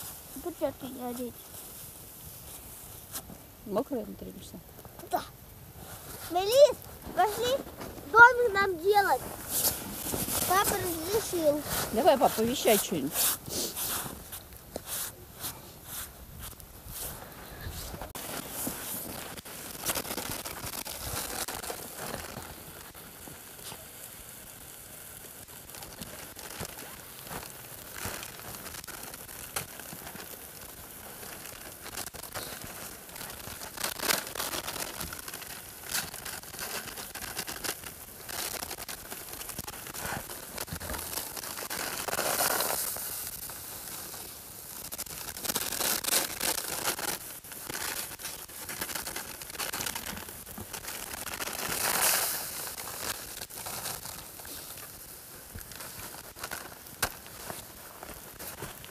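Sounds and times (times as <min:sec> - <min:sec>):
plastic packet crinkling and tearing: 0:06.2 - 0:15.0, 0:18.1 - 0:23.1, 0:25.5 - 0:58.9.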